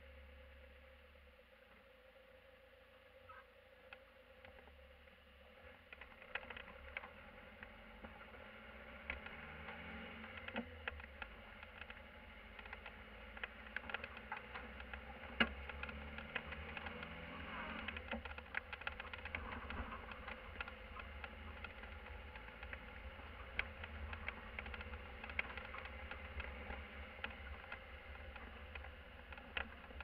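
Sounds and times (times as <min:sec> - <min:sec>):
van engine droning: 0:04.9 - 0:30.0
cab interior clicks and rattles: 0:10.3 - 0:30.0.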